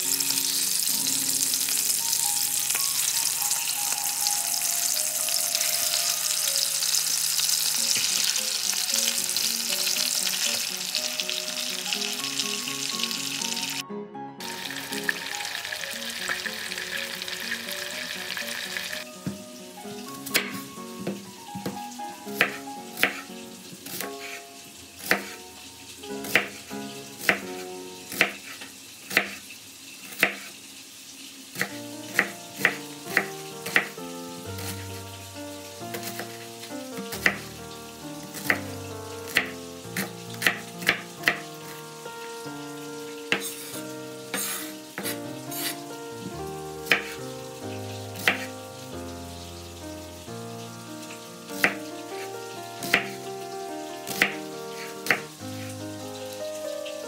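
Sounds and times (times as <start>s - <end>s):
soft background music: 0.0s - 28.5s, 31.2s - 57.0s
knife cutting on wooden board: 43.3s - 45.8s.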